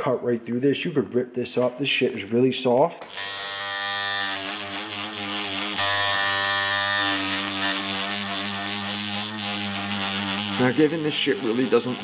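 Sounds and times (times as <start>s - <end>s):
tattoo machine buzzing: 3.0s - 12.0s.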